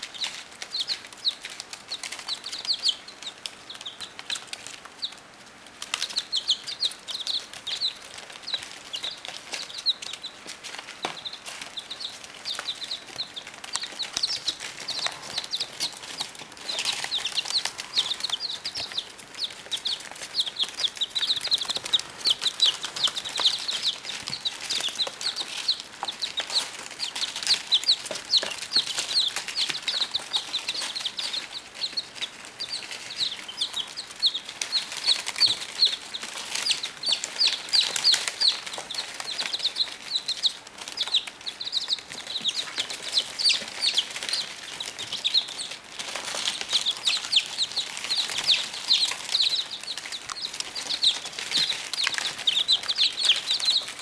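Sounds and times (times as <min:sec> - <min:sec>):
baby chicks peeping: 0:00.0 - 0:54.0
pecking clicks on newspaper: 0:00.0 - 0:54.0.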